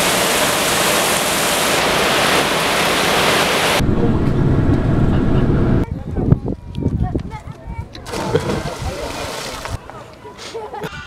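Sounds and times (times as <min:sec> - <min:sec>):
loud rushing hiss: 0:00.0 - 0:03.9
train rumbling in motion: 0:03.8 - 0:05.8.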